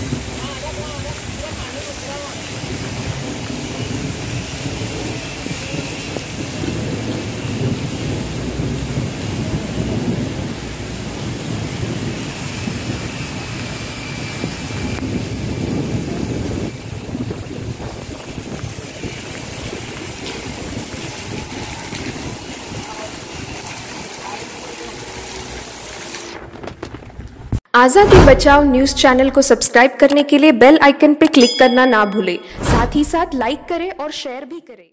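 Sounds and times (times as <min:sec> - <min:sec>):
heavy rain on a street: 0:00.0 - 0:27.6.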